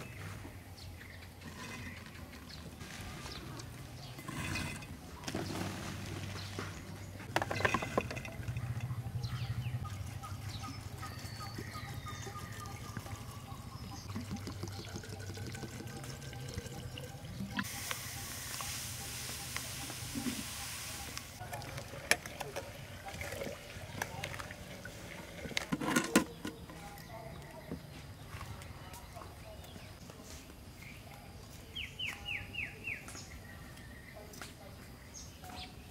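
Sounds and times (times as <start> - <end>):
bird calling: 7.5 - 15.6
liquid pouring into jar: 13.8 - 17.6
granules pouring hiss: 17.7 - 21.4.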